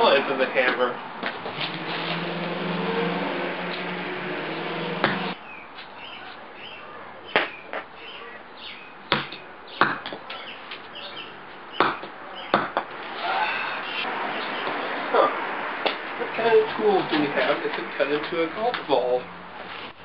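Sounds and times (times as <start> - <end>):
birds chirping: 3.8 - 17.1.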